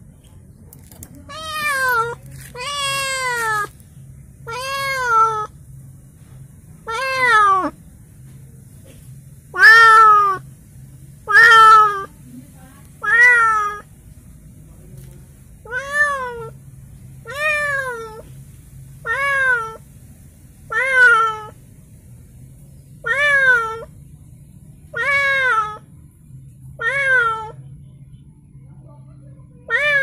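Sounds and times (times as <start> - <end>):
cat meowing: 1.2 - 3.8, 4.4 - 5.5, 6.8 - 7.8, 9.5 - 10.4, 11.3 - 12.1, 13.0 - 13.9, 15.6 - 16.6, 17.2 - 18.3, 19.0 - 19.8, 20.7 - 21.6, 23.0 - 23.9, 24.9 - 25.8, 26.8 - 27.6, 29.7 - 30.0.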